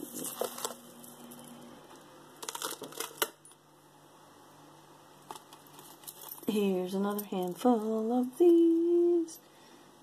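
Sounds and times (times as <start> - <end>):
metal chain necklace clinking: 5.5 - 8.5.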